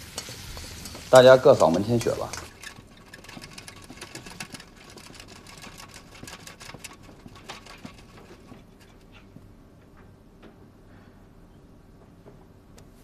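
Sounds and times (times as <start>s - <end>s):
trolley rattling as pushed: 1.0s - 9.3s.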